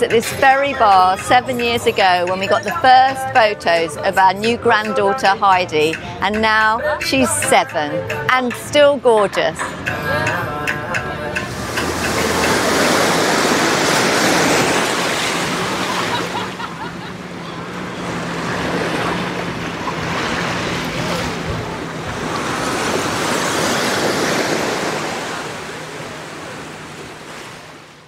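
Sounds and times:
waves washing onto beach: 11.4s - 28.0s.

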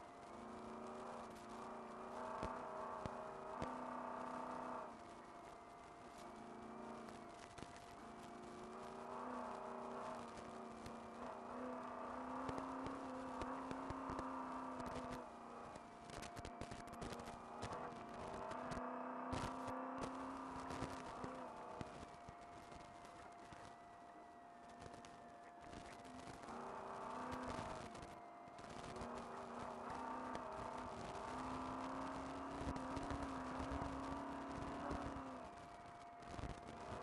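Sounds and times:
steady whine: 0.0s - 37.0s
truck engine running under load: 8.1s - 15.8s, 29.0s - 35.4s.

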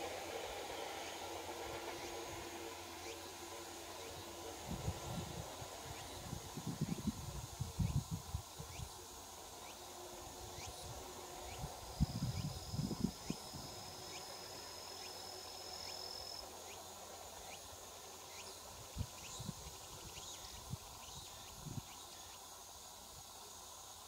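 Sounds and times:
insects humming: 0.0s - 24.0s
insect chirps: 5.0s - 24.0s
high-pitched insect trill: 5.7s - 24.0s.

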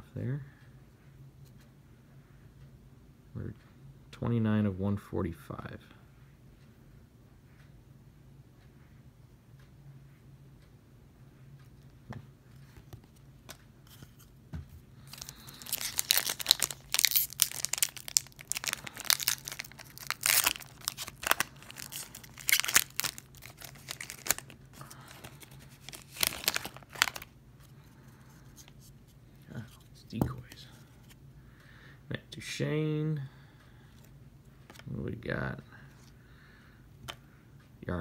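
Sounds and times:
foil wrapper tearing and crinkling: 15.1s - 27.3s
faint card handling taps: 30.2s - 30.7s.

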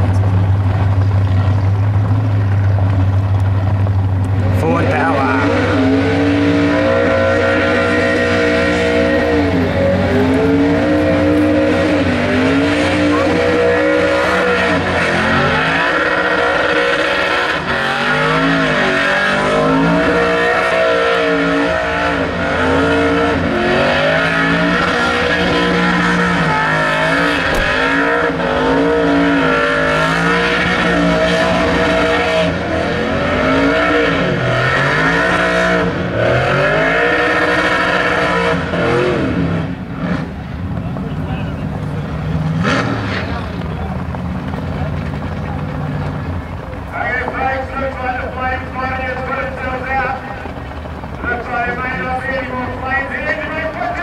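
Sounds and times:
car engine at high revs: 0.0s - 54.0s.

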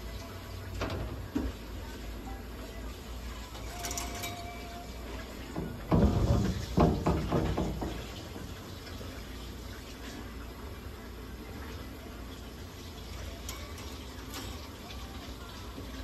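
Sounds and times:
knocks and rustles: 5.5s - 8.6s.

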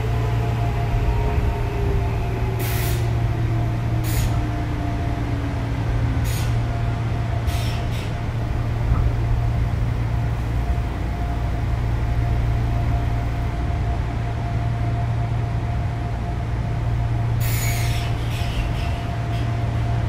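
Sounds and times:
electric train hum and whine: 0.0s - 20.0s
brake air hisses: 7.5s - 8.1s.

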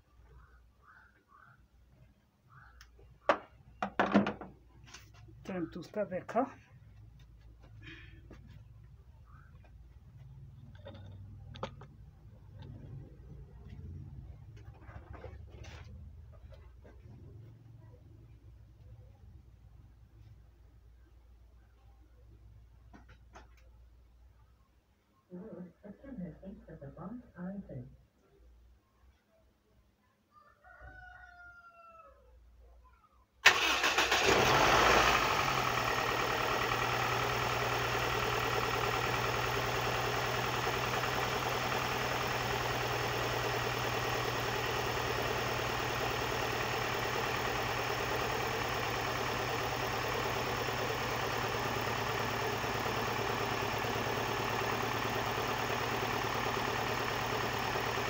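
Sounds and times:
car engine starting and idling: 33.4s - 58.0s.

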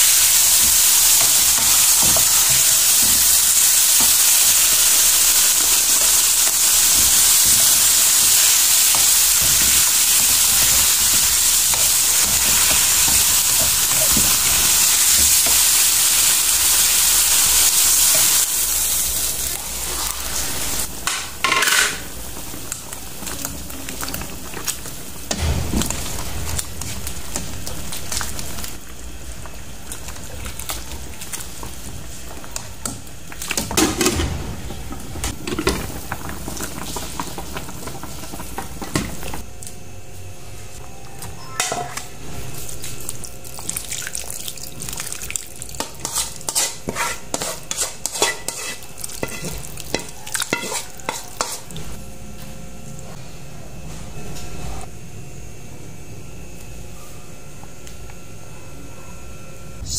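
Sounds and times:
pot lid and utensils clattering: 21.1s - 22.1s
spoon clinking and scraping bowl: 45.8s - 51.8s.

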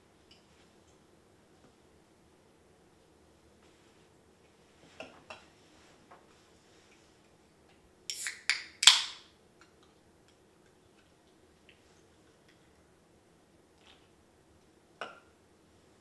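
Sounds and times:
drink can cracked open with fizz: 8.1s - 9.3s.

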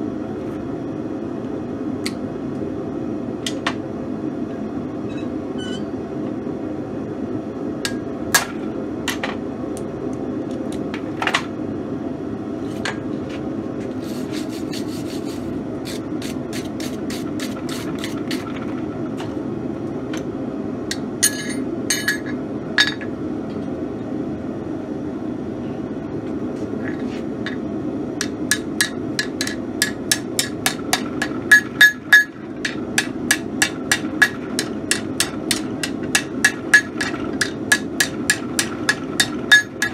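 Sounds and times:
steady hum: 0.0s - 39.9s
tools clinking: 20.9s - 23.1s
hammer striking metal on anvil: 28.2s - 39.9s.

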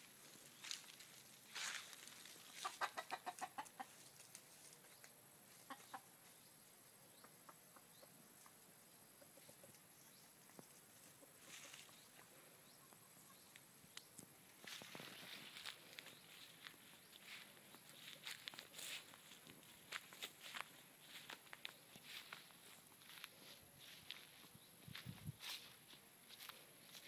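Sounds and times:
rooster clucking: 2.5s - 4.0s, 5.5s - 6.2s.

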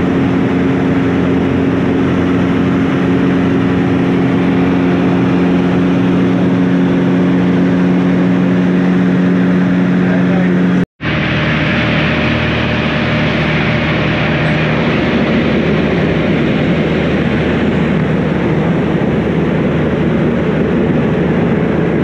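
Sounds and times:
aircraft engine and propeller hum: 0.0s - 22.0s
rushing air noise: 11.0s - 22.0s.

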